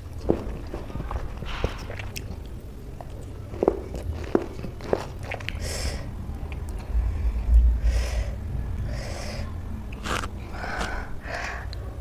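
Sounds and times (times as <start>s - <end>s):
sharp breaths drawn in: 6.9s - 9.6s, 10.4s - 11.8s
mouth sucking and slurping: 8.8s - 11.7s.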